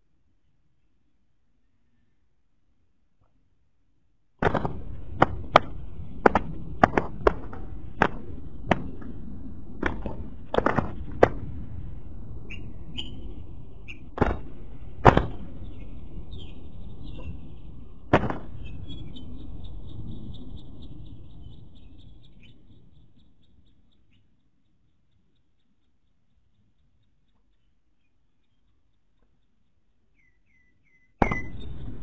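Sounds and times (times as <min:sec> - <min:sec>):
steady background noise: 0:00.0 - 0:32.0
dove wing slaps: 0:04.4 - 0:09.1, 0:14.2 - 0:15.4.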